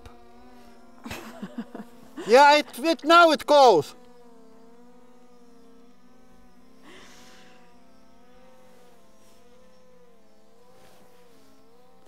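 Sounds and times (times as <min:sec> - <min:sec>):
drone propellers buzzing: 0:00.0 - 0:12.0.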